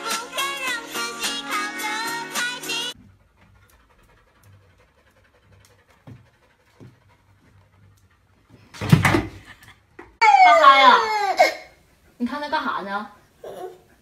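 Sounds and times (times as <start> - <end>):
dog panting: 2.8 - 8.8
child crying loudly: 10.2 - 11.8.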